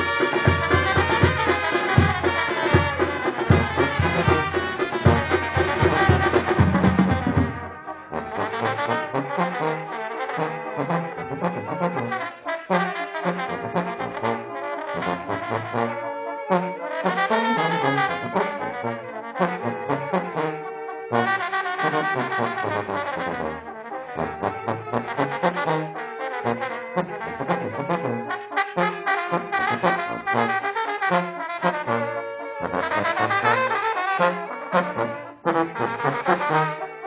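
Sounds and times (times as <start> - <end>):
loud drum beats: 0.0 - 7.8
trumpets and trombones: 0.0 - 37.0.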